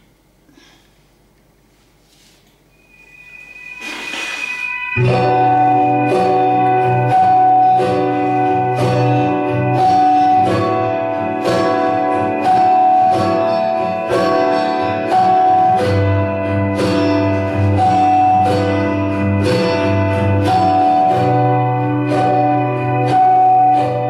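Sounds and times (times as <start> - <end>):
instrumental karaoke backing music: 2.9 - 24.0.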